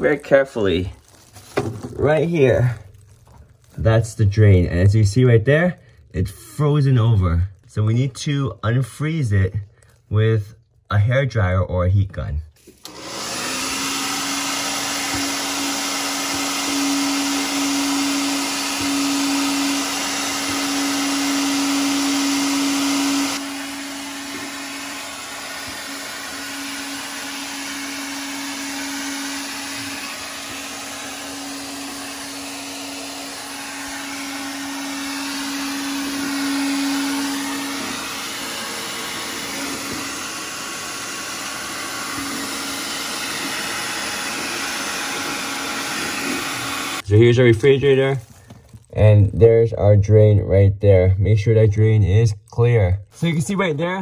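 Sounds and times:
hair dryer blowing: 12.6 - 48.0.

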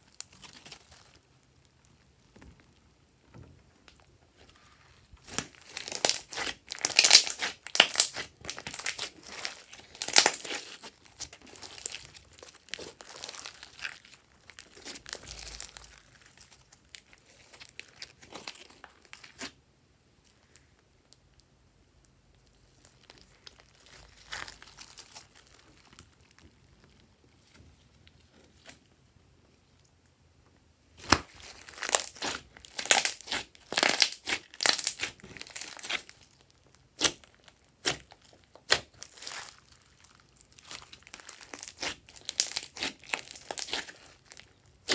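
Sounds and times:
slime crackling and clicking: 5.2 - 15.9, 40.6 - 44.9.

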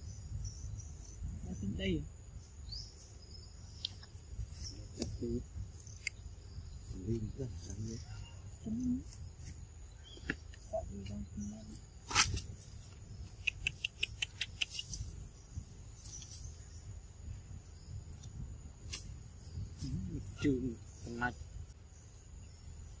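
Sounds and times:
sharp click: 13.4 - 15.0.

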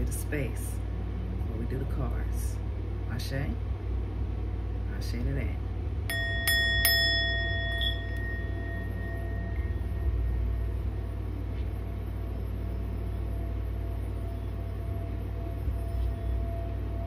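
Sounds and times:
low rumble: 0.0 - 17.0
metal chime ringing: 6.1 - 11.2.

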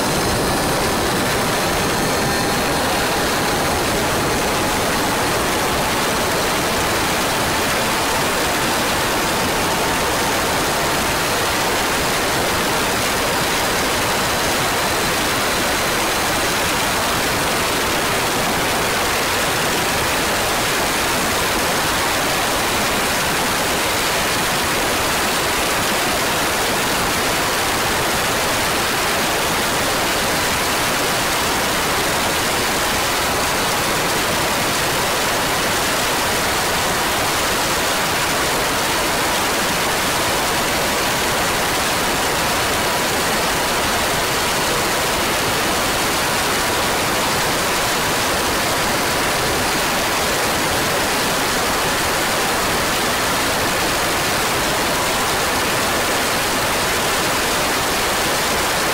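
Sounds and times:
faint engine whine: 0.0 - 9.6.

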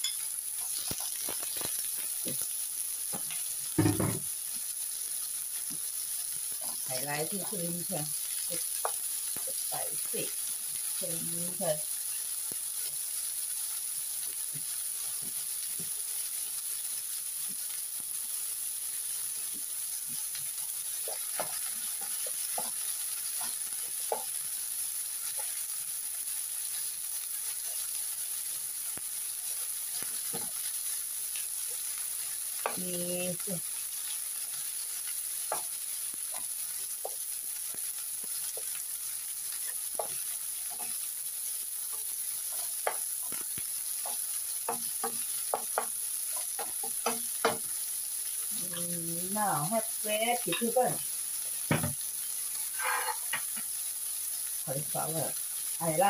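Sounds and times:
spatula scraping and tapping pan: 0.0 - 2.4, 8.8 - 9.5, 19.4 - 24.5, 29.9 - 30.7, 32.6 - 33.1, 35.4 - 41.1, 41.8 - 47.8, 50.5 - 50.8, 52.7 - 53.7
food sizzling in oil: 0.0 - 56.0.

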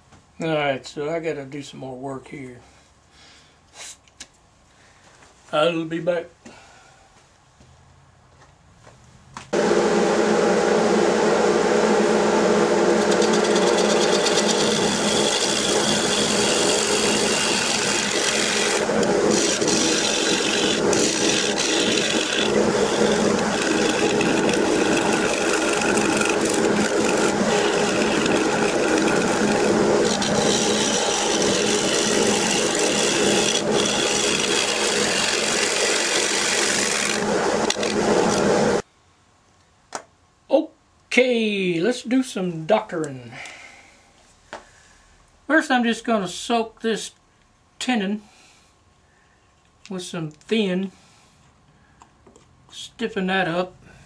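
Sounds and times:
lathe hum: 9.6 - 38.8
gouge cutting wood on lathe: 11.1 - 38.8.

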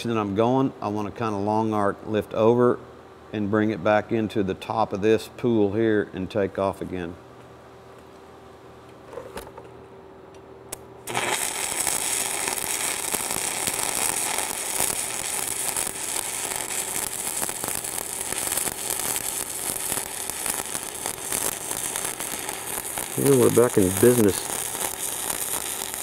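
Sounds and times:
welding arc crackling: 11.0 - 26.0.

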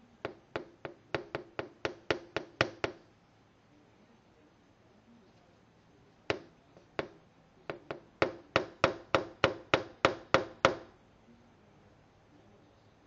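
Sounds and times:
tapping on glass window: 0.2 - 3.0, 6.3 - 10.9.

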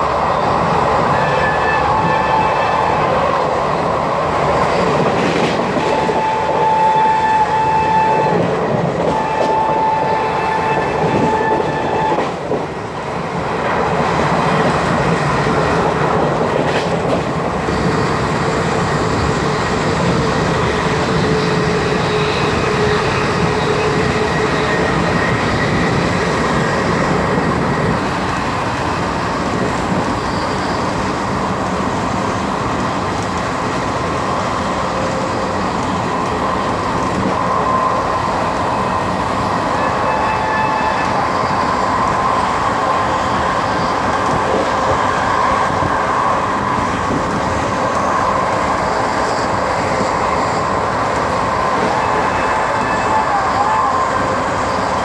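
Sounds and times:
rushing wind: 0.0 - 55.0
locomotive horn blasts: 6.0 - 8.4, 9.1 - 12.3.

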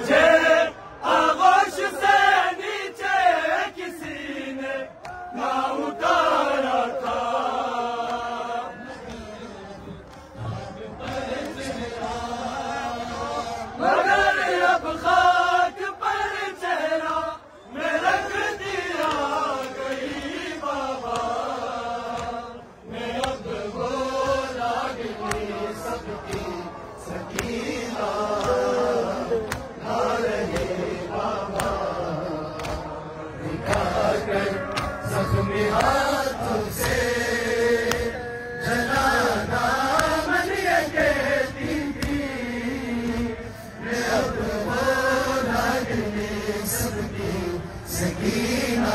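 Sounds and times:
men chanting in unison: 0.0 - 48.9
hands slapping chests: 18.9 - 20.4, 21.0 - 23.6, 24.2 - 37.1, 37.8 - 43.4.

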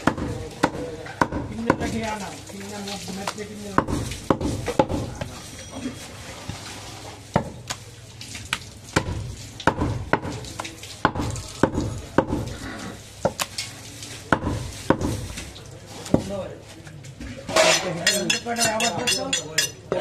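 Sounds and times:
cleaver chopping meat on wood: 0.0 - 2.0, 3.8 - 5.3, 8.9 - 10.4, 11.0 - 12.5, 14.3 - 15.3.

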